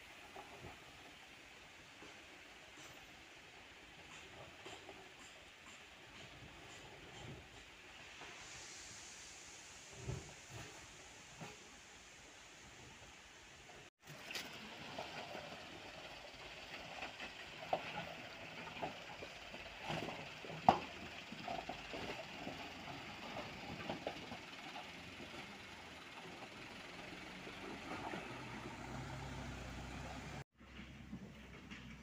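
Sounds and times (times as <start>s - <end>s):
diesel truck engine running: 14.1s - 31.7s.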